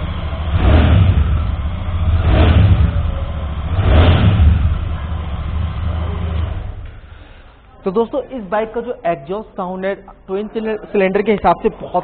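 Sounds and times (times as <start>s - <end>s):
motorcycle engine idling and revving: 0.0s - 7.1s.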